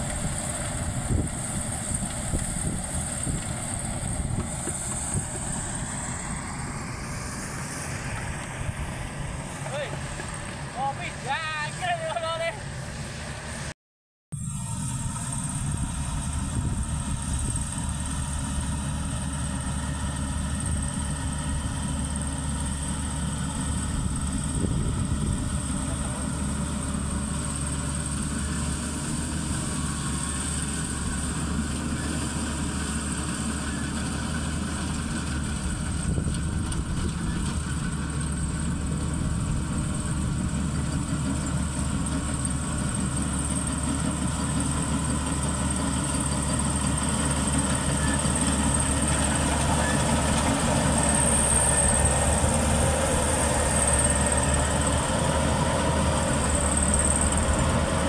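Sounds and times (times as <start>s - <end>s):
combine harvester engine running: 0.0s - 13.7s, 14.4s - 58.0s.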